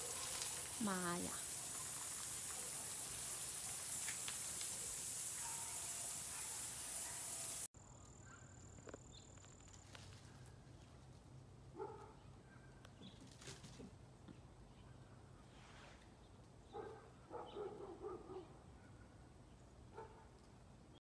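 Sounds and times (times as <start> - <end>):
steady high hiss: 0.0 - 7.7.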